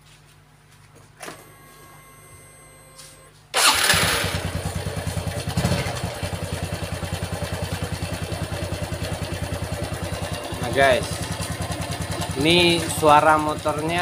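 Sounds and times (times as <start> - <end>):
motorcycle engine starting and idling: 1.2 - 14.0
rough crackling engine rattle: 3.6 - 14.0.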